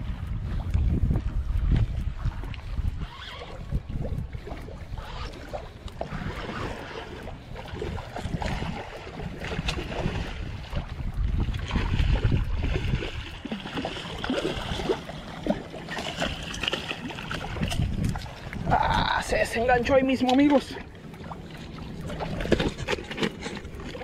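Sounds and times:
wind rumbling on microphone: 0:00.0 - 0:24.0
fish thrashing and splashing: 0:04.6 - 0:19.0, 0:20.9 - 0:24.0.

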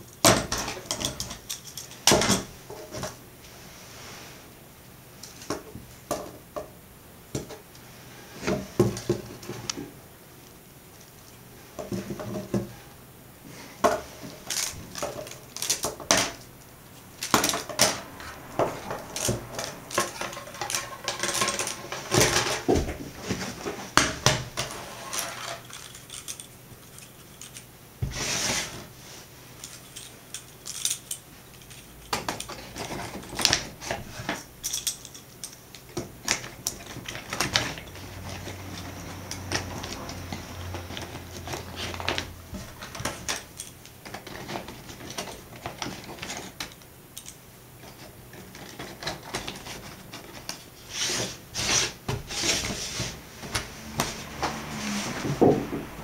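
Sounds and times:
wooden slats clattering: 0:51.6 - 0:56.0.

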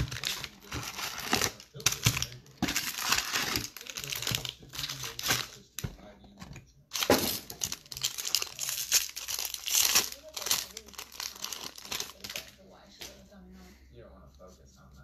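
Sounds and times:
foil pack tearing open: 0:00.0 - 0:05.8, 0:06.9 - 0:12.6
foil packs crinkling: 0:00.0 - 0:06.0, 0:06.9 - 0:12.6.

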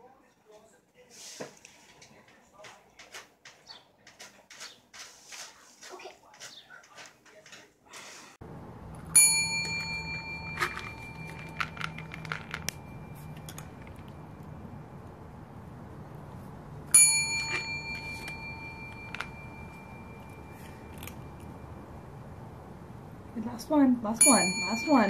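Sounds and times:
desk service bell ding: 0:09.1 - 0:13.7, 0:16.9 - 0:21.8, 0:24.2 - 0:25.0.

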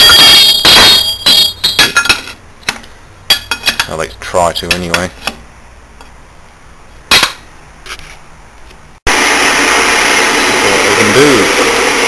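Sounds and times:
sharp metal clunk: 0:00.5 - 0:03.9, 0:07.1 - 0:07.5
lathe running: 0:09.1 - 0:12.0.

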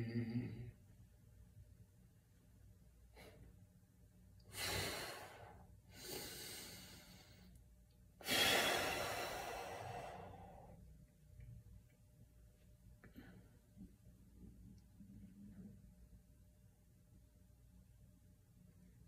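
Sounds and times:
man breathing deeply: 0:04.5 - 0:07.6, 0:08.2 - 0:10.9.

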